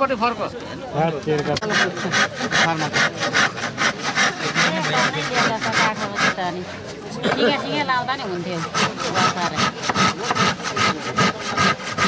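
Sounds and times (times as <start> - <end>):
hand saw cutting wood: 1.3 - 7.0, 8.2 - 12.0.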